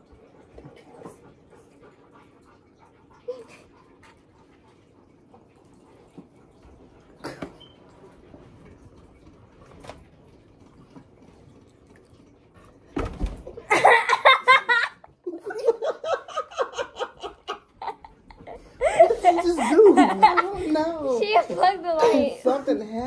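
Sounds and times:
loud laughter: 0:13.7 - 0:20.6.

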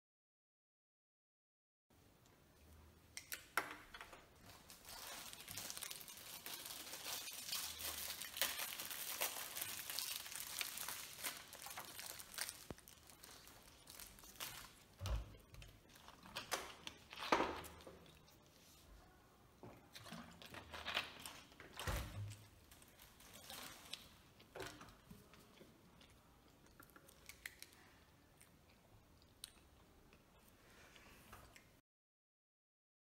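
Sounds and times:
plastic wrapper crinkling: 0:04.4 - 0:18.2, 0:20.0 - 0:25.1.

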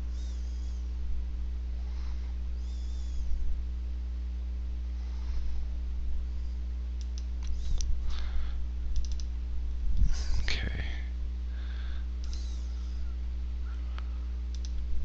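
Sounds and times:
low electrical hum: 0:00.0 - 0:15.0
computer mouse clicks: 0:07.0 - 0:07.9, 0:08.9 - 0:09.3, 0:12.2 - 0:13.0, 0:14.5 - 0:14.9.

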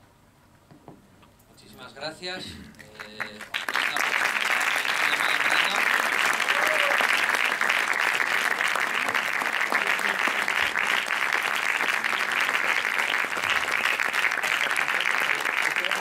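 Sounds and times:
audience applauding: 0:02.8 - 0:16.0.

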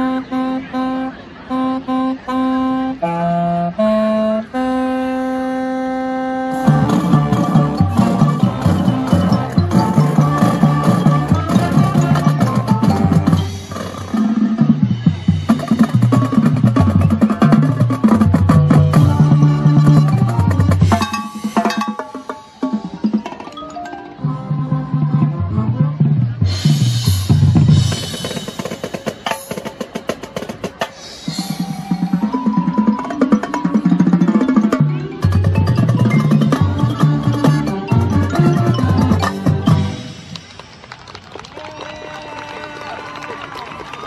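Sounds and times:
low brass line: 0:00.0 - 0:23.0
marching band playing: 0:00.0 - 0:41.0
drumline playing: 0:06.5 - 0:40.8.

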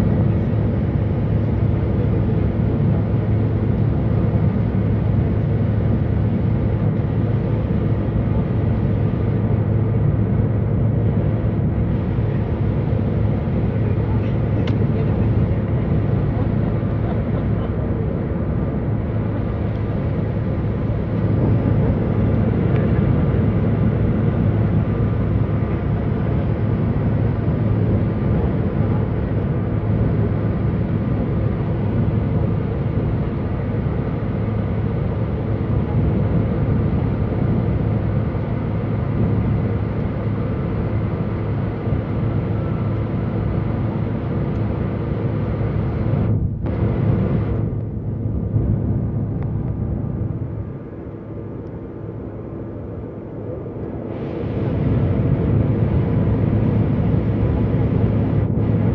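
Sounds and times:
jet engine drone: 0:00.0 - 0:58.9
low hum: 0:00.0 - 0:58.9
rushing air: 0:44.8 - 0:58.9.

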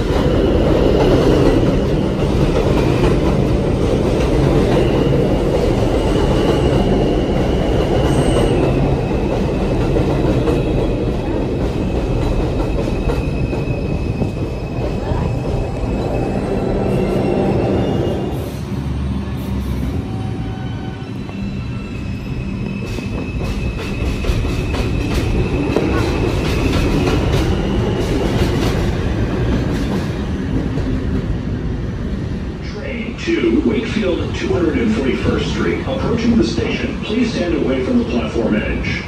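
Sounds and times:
subway train wheels rumbling: 0:00.0 - 0:39.0
high wheel squeal: 0:16.0 - 0:28.4.

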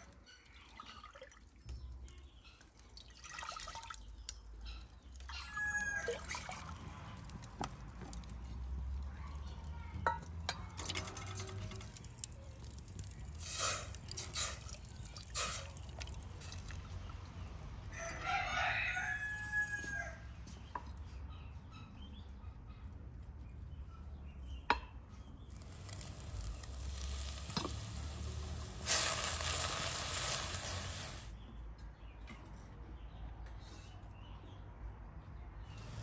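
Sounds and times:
rooster crowing: 0:17.9 - 0:20.2.

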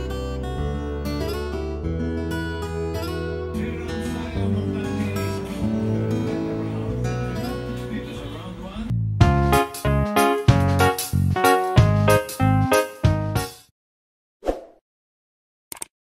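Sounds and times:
strummed acoustic guitar music: 0:00.0 - 0:08.5.

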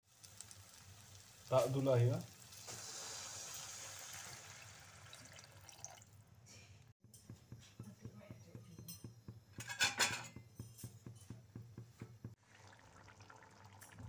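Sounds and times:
thick gravy simmering and popping: 0:00.0 - 0:06.0, 0:10.3 - 0:14.0.

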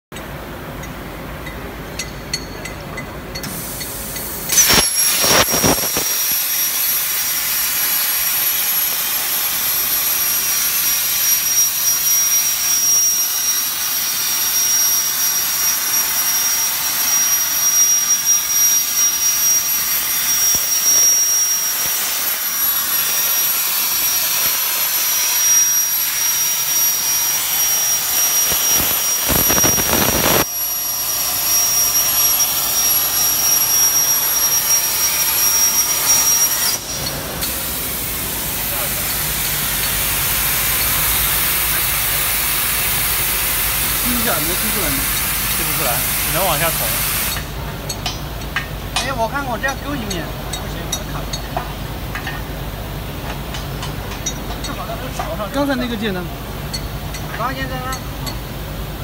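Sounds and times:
high-pitched whine: 0:03.4 - 0:51.4
plasma arc hissing: 0:03.5 - 0:47.6.

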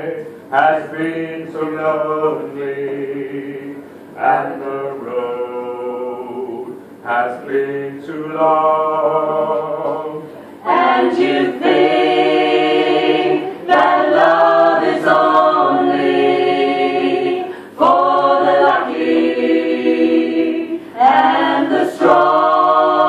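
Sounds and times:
choir singing held chords: 0:00.0 - 0:23.0.

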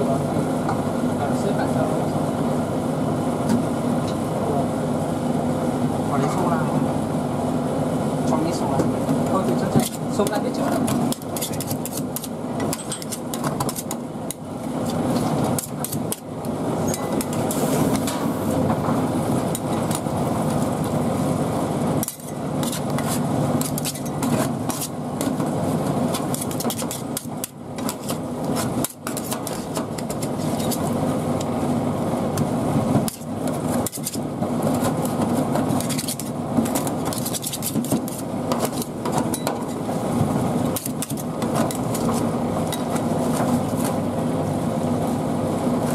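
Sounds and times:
steady background hum: 0:00.0 - 0:45.9
metal spatulas chopping and scraping: 0:09.6 - 0:14.0, 0:14.8 - 0:18.2, 0:22.0 - 0:30.9, 0:33.0 - 0:39.8, 0:40.7 - 0:44.0.

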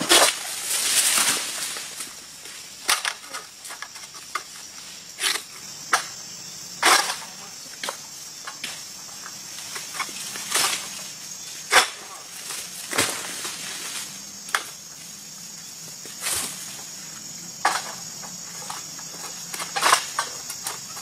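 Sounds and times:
insects droning: 0:00.0 - 0:21.0.

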